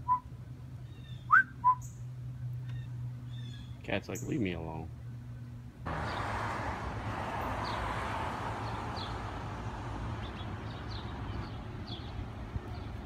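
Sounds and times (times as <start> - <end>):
road traffic rumble: 0.0 - 13.0
bird chirps: 0.8 - 4.4.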